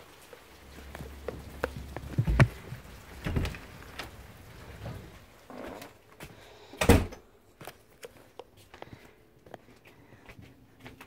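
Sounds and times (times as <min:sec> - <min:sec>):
footsteps: 0:00.3 - 0:06.5, 0:07.6 - 0:11.0
door shutting thump: 0:06.8 - 0:07.2.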